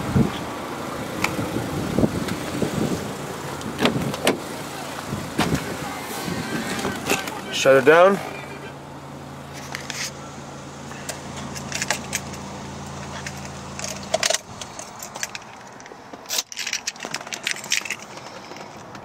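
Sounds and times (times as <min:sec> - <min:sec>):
car engine idling: 0:00.0 - 0:19.0
keys jangling in ignition: 0:11.4 - 0:12.4, 0:13.1 - 0:18.9.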